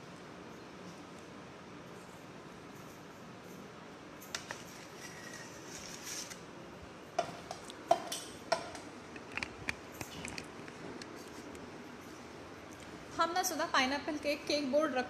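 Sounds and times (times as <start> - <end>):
utensil scraping on worktop: 4.4 - 6.4.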